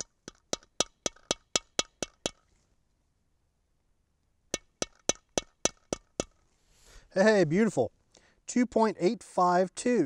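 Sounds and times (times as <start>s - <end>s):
hammer tapping: 4.5s - 6.4s.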